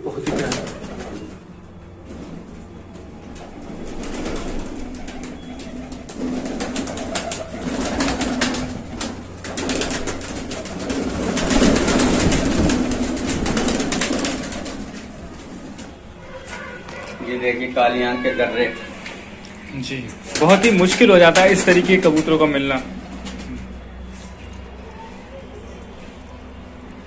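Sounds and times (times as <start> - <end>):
wing flaps and clatters: 0.0 - 16.7, 20.1 - 22.3
pigeons cooing: 0.0 - 17.8.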